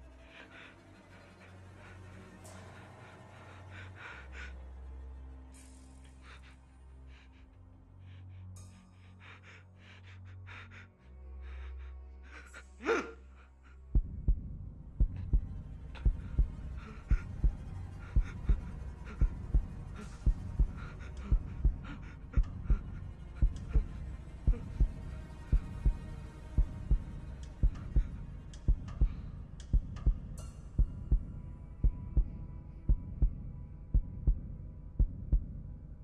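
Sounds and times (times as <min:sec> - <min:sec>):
heartbeat thumps: 0:14.0 - 0:35.7.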